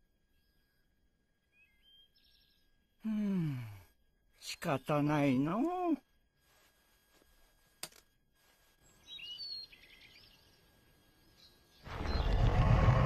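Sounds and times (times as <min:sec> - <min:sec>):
birdsong chirps: 0:00.0 - 0:03.0, 0:08.7 - 0:13.0
quiet outdoor ambience: 0:00.0 - 0:13.0.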